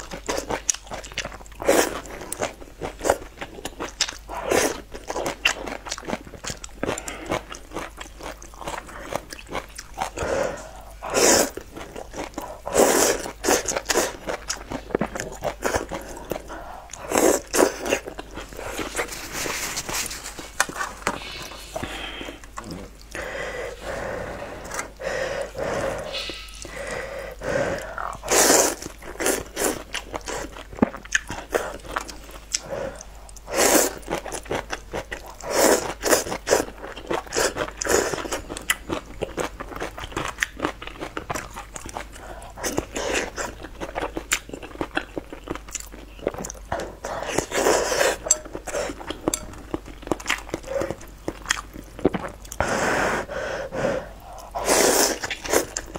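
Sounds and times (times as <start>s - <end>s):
wet chewing and biting: 0.0s - 27.0s, 27.7s - 52.6s, 54.1s - 55.9s
noodles being slurped: 8.1s - 38.3s, 54.3s - 55.9s.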